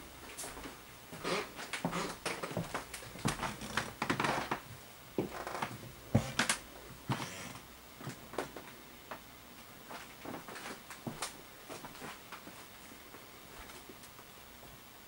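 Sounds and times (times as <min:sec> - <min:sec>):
footsteps on hardwood floor: 0:00.4 - 0:04.6, 0:05.2 - 0:06.4, 0:09.9 - 0:12.7.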